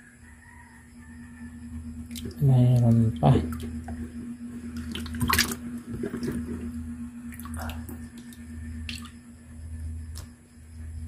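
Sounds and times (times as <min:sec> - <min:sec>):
steady low hum: 0:00.0 - 0:11.0
water splashing and sloshing: 0:02.1 - 0:09.2.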